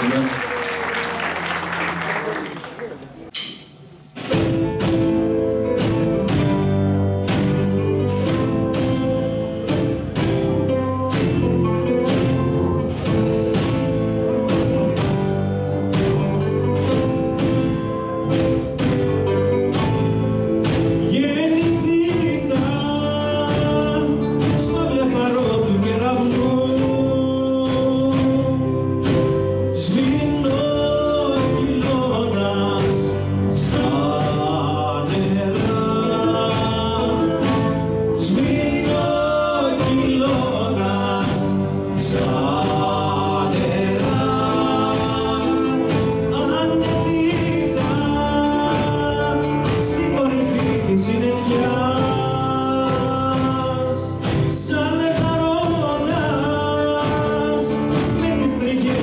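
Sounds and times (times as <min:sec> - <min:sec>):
acoustic guitar: 0:00.0 - 0:59.0
live band playing: 0:00.0 - 0:59.0
man singing into a microphone: 0:21.0 - 0:59.0.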